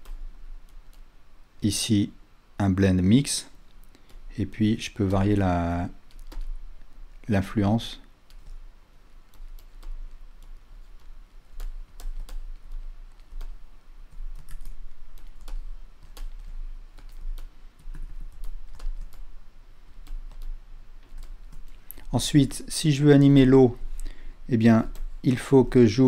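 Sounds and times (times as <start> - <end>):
steady low hum: 0.0 - 26.0
keyboard and mouse clicks: 6.0 - 6.9, 8.2 - 8.6, 9.3 - 19.3, 20.0 - 22.1.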